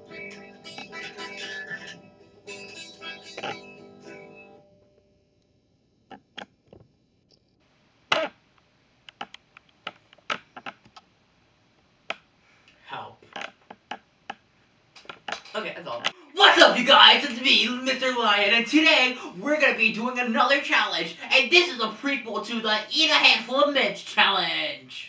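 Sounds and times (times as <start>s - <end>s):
guitar music: 0.0s - 5.2s
sharp clicks and knocks: 9.1s - 11.1s, 15.0s - 16.2s.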